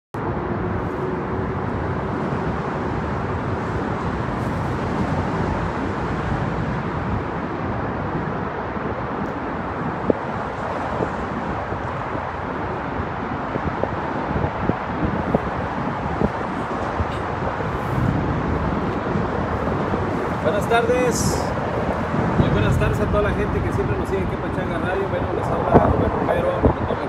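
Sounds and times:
wind: 0.1 - 27.0
traffic hiss: 3.1 - 7.4, 13.8 - 27.0.

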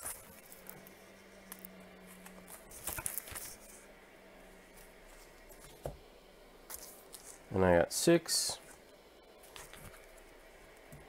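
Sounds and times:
plastic sleeves crinkling: 0.0 - 3.8, 9.4 - 10.3
faint low hum: 0.0 - 11.0.

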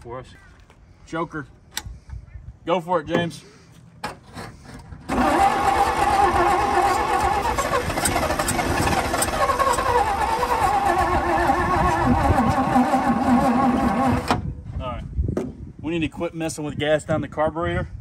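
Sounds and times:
truck engine running: 5.1 - 14.3.

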